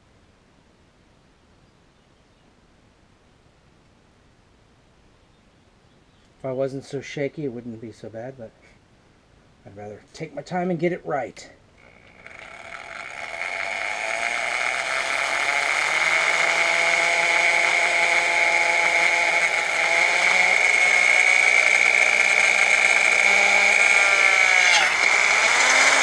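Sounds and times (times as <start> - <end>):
electric drill motor: 11.8 - 26.0
drill bit screeching on metal: 20.5 - 26.0.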